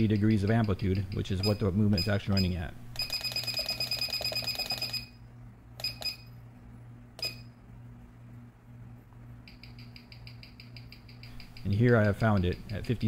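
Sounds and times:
watch ticking through speaker: 9.4s - 13.0s.

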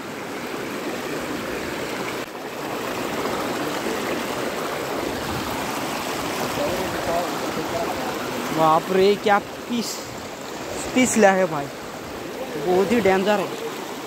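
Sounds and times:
river rushing over rocks: 0.0s - 14.0s.

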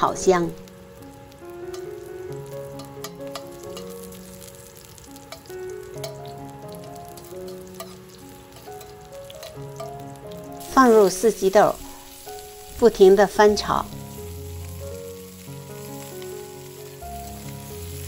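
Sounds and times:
background music with held notes: 0.0s - 18.0s
food sizzling in hot oil: 0.0s - 18.0s
metal spatula stirring in wok: 5.3s - 10.1s.

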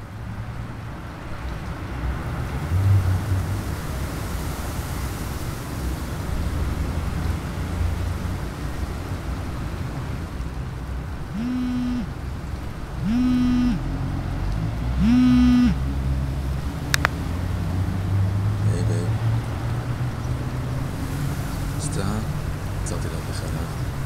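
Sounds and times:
phone vibrating buzzes: 11.3s - 12.2s, 13.0s - 13.9s, 15.0s - 15.8s
short sharp click: 17.0s - 17.2s.

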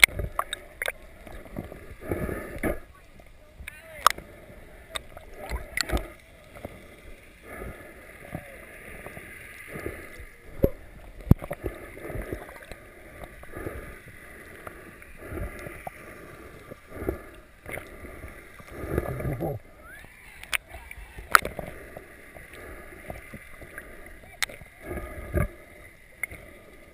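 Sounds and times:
muffled underwater water noise: 0.0s - 26.9s.

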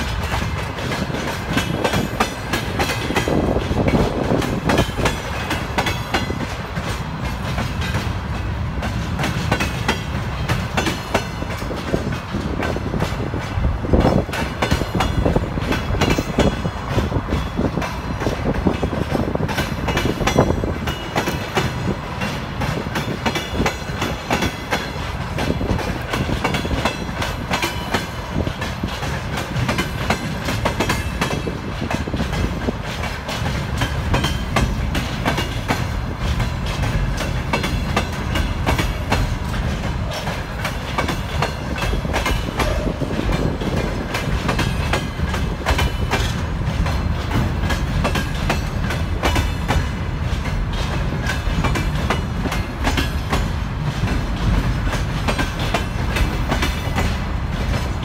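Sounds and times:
freight train rumble: 0.0s - 58.0s
train wheels clattering over rail joints: 0.0s - 58.0s.

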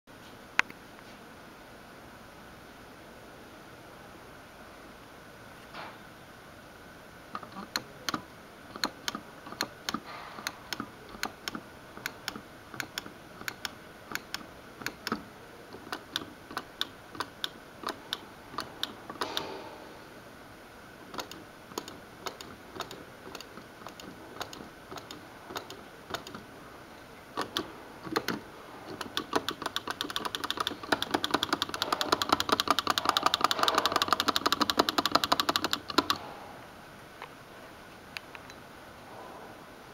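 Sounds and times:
push buttons clicking: 7.3s - 19.6s, 21.1s - 26.5s, 27.3s - 36.3s.

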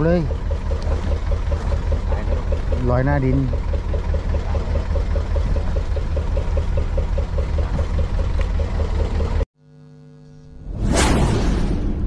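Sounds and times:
boat engine idling: 0.0s - 9.4s.

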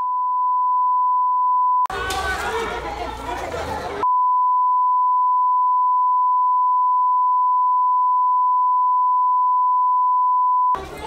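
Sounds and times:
censor bleep tone: 0.0s - 1.9s, 4.0s - 10.8s.

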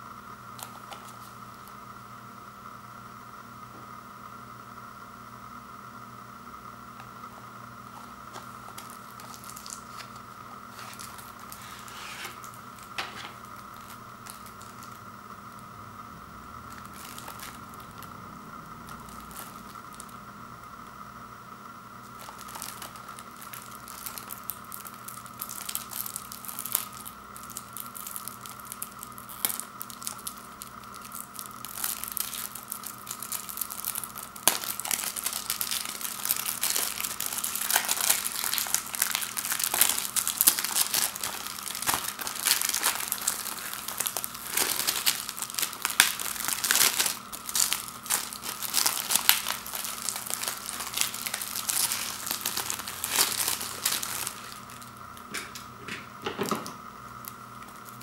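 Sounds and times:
plastic wrap crinkling: 0.6s - 1.8s, 7.0s - 15.6s, 16.7s - 20.2s, 22.0s - 55.7s, 56.4s - 58.0s.

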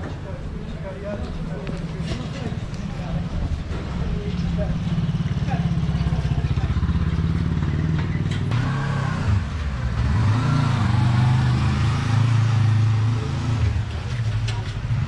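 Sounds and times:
vehicle engine running: 1.6s - 10.4s.

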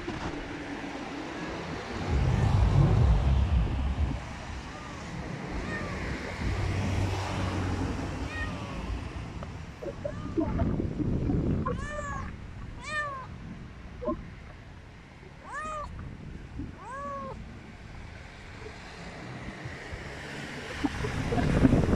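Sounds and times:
cat meowing: 4.6s - 6.9s, 8.2s - 9.0s, 9.8s - 10.6s, 11.6s - 13.3s, 15.4s - 15.9s, 16.8s - 17.4s.

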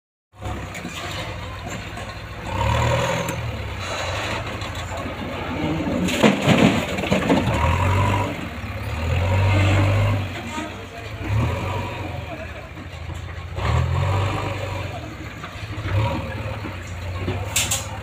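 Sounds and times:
diesel engines running: 0.4s - 18.0s
rubble clattering into steel trolley: 4.0s - 8.0s, 16.6s - 18.0s.

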